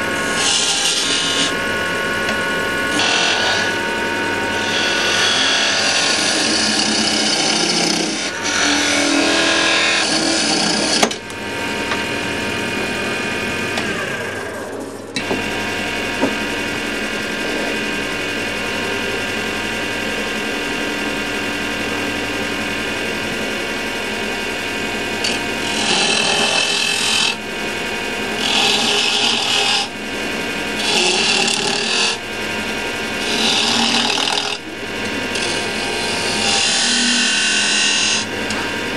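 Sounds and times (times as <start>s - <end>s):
wood lathe motor hum: 0.0s - 38.9s
turning tool scraping wood: 0.3s - 1.6s, 4.5s - 11.2s, 25.2s - 27.4s, 28.3s - 29.9s, 30.8s - 32.2s, 33.2s - 38.7s.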